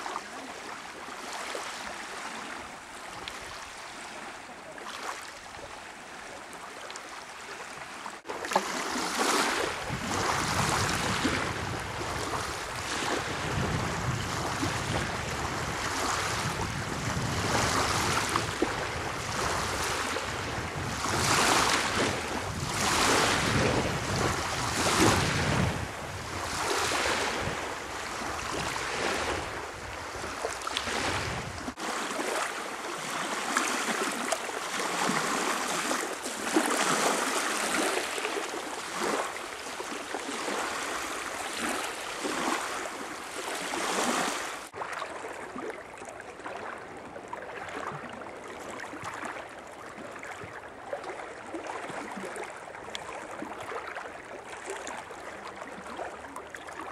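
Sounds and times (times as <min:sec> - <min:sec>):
waves washing on sand: 0:07.2 - 0:45.2
wind rumbling on microphone: 0:09.6 - 0:31.8.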